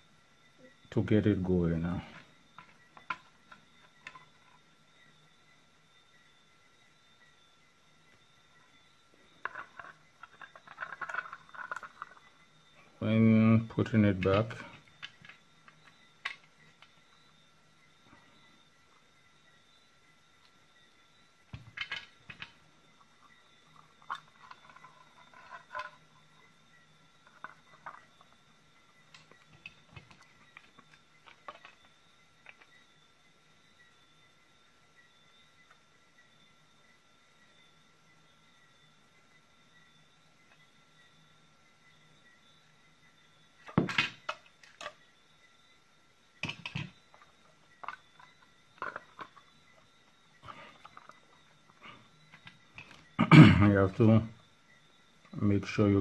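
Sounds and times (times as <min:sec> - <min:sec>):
plastic parts clicking and knocking: 0:14.2 - 0:17.0, 0:21.5 - 0:22.6, 0:29.1 - 0:32.7, 0:43.6 - 0:45.0, 0:46.4 - 0:49.5.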